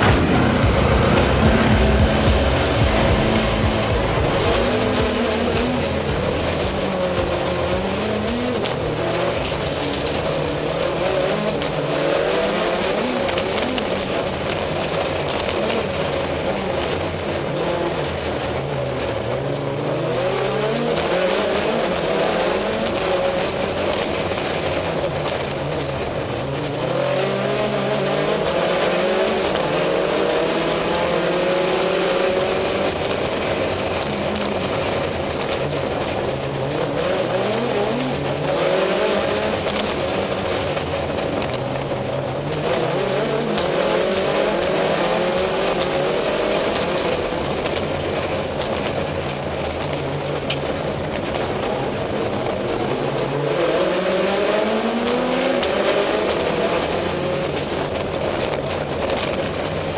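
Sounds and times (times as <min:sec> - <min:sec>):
rally car engine revving: 0:00.0 - 0:59.9
road and tyre noise: 0:00.0 - 0:59.9.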